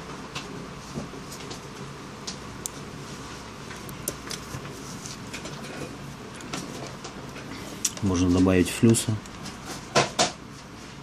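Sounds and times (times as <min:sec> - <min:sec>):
soldering ticks and crackles: 0:02.2 - 0:02.9, 0:03.7 - 0:04.4.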